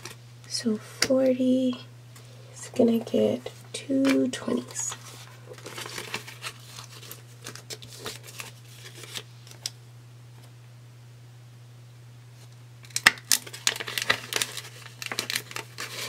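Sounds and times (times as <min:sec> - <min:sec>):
steady low hum: 0:00.0 - 0:16.0
paper banknotes rustling: 0:04.0 - 0:09.7, 0:13.3 - 0:16.0.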